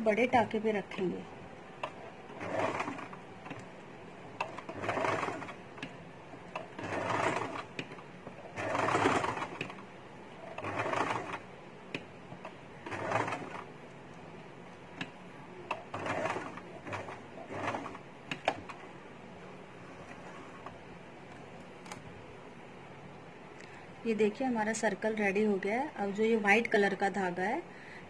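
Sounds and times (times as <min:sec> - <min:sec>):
sewing machine stitching: 0:01.8 - 0:03.7, 0:04.4 - 0:09.8, 0:10.4 - 0:11.5, 0:12.4 - 0:13.7, 0:15.7 - 0:18.8, 0:19.9 - 0:20.8.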